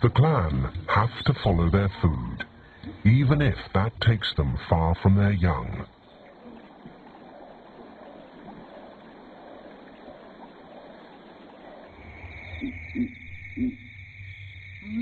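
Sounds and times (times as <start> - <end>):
flowing water: 0.0 - 15.0
low hum: 0.0 - 15.0
high insect drone: 5.4 - 15.0
short low animal calls: 6.0 - 14.0.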